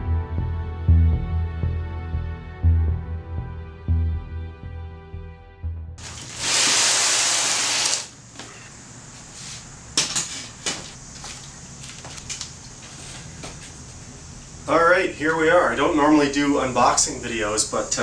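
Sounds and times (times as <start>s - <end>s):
background music: 0.0s - 6.0s
loud hiss: 6.0s - 9.8s
flip-flop footsteps on concrete: 8.3s - 14.1s.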